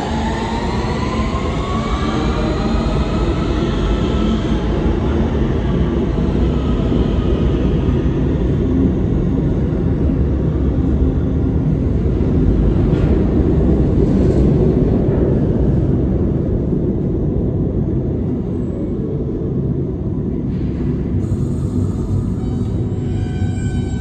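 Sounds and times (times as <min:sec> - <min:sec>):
subway train wheels rumbling: 0:00.0 - 0:24.0.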